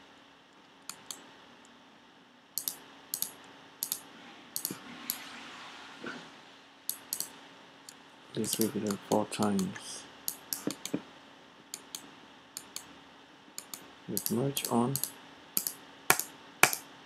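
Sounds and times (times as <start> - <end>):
faint steady hum: 0.0 - 17.0
mouse and keyboard clicks: 2.6 - 4.0, 4.6 - 5.2, 6.9 - 7.3, 10.3 - 11.0, 13.6 - 16.8.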